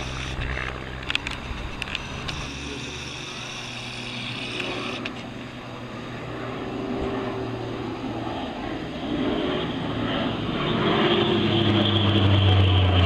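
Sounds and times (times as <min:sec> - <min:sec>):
sharp clicks: 0:00.0 - 0:05.3
turboprop aircraft engines droning: 0:00.0 - 0:13.0.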